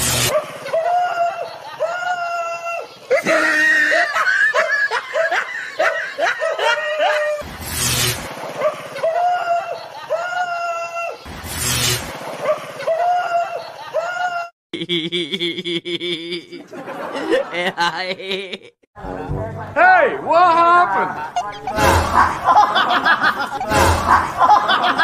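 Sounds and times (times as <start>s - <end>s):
short harsh noise bursts: 0.0s - 0.6s, 7.4s - 9.0s, 11.3s - 12.8s, 23.6s - 24.8s
high-pitched laughing: 0.2s - 7.4s, 8.6s - 11.2s, 12.5s - 18.8s, 20.9s - 25.0s.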